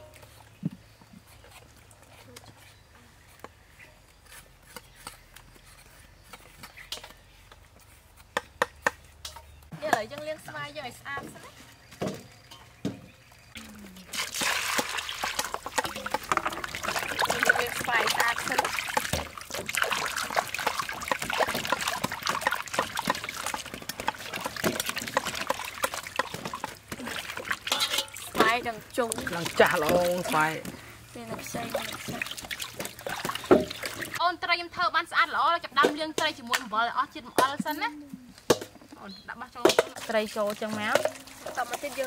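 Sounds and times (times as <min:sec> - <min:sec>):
knife scraping and tapping on wood: 0:04.2 - 0:10.2
water splashing in a metal basin: 0:12.0 - 0:34.2, 0:39.6 - 0:42.0.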